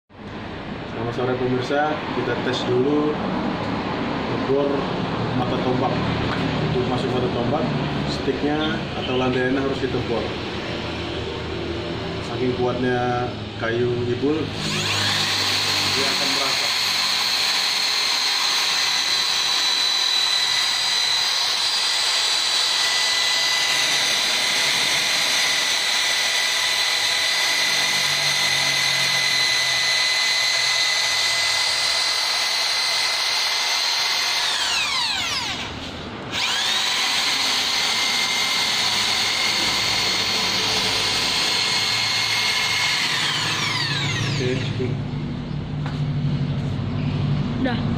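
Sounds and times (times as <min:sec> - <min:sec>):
electric drill boring into wood: 0:14.2 - 0:44.9.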